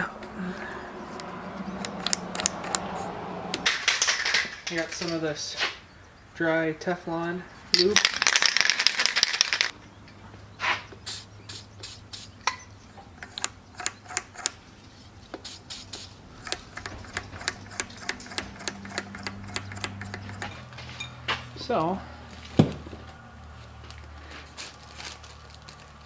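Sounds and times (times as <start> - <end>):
light clicks and ticks: 1.2 - 2.9
aerosol can spraying: 11.0 - 12.4, 15.4 - 16.2.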